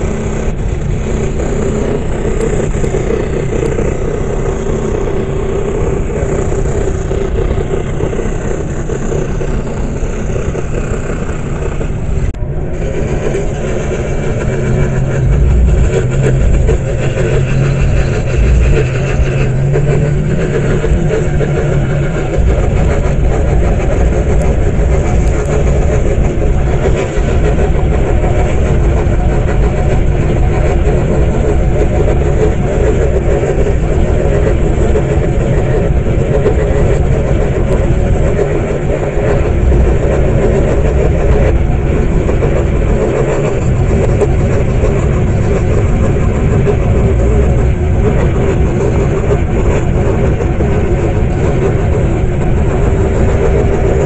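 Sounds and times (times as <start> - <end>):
scroll saw cutting wood: 0.0 - 29.5.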